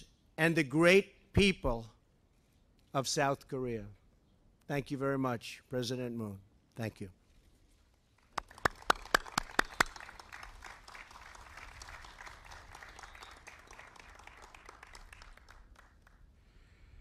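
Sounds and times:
audience applauding: 8.3 - 16.2.

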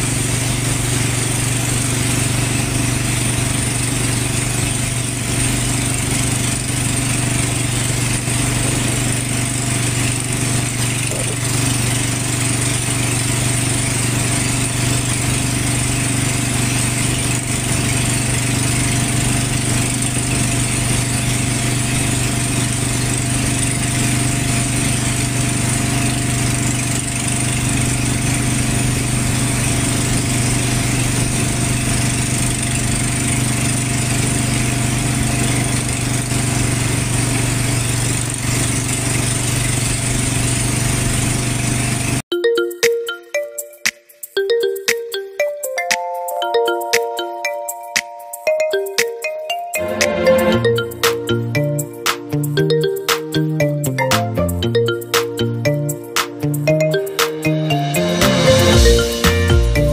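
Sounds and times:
boat engine running steadily: 0.0 - 42.2.

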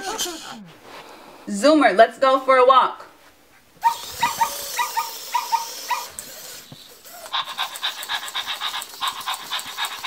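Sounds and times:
toy dog high yips: 3.8 - 8.8
toy dog rapid panting: 3.8 - 10.0.

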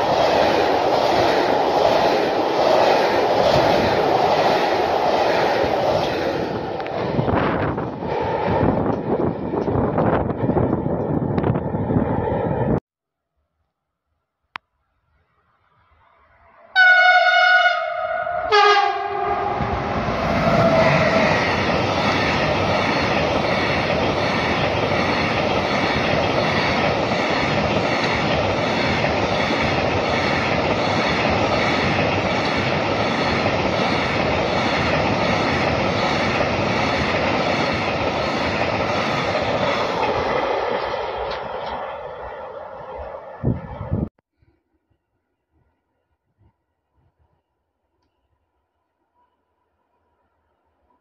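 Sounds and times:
two-tone locomotive horn: 16.7 - 21.3.

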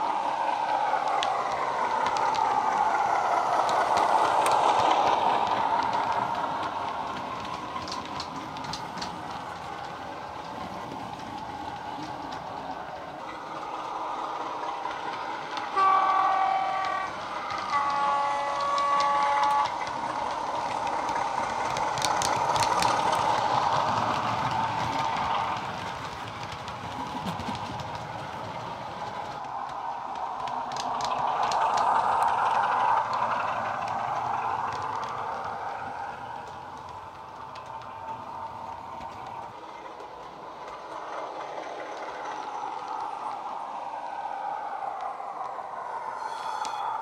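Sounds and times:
diesel locomotive engine sound: 0.0 - 47.0
model train horn: 15.8 - 19.8.

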